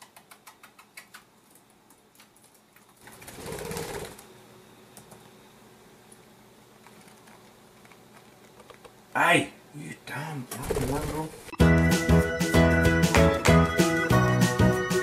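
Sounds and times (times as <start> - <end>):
laptop keyboard typing clicks: 0.0 - 3.4.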